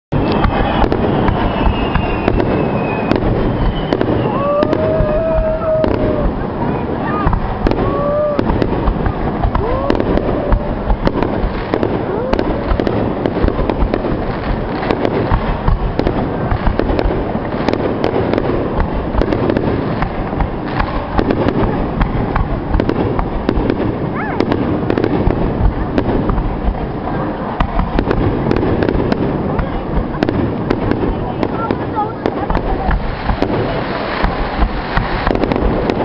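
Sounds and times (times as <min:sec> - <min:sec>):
firework shells bursting: 0:00.1 - 0:06.4, 0:07.2 - 0:26.8, 0:27.4 - 0:36.0
firework crackles: 0:00.1 - 0:36.0.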